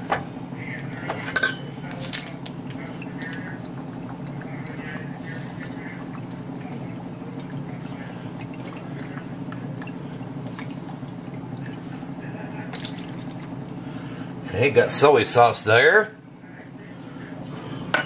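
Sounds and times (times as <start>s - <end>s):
steady low hum: 0.0s - 18.0s
liquid trickling into cup: 0.8s - 14.2s.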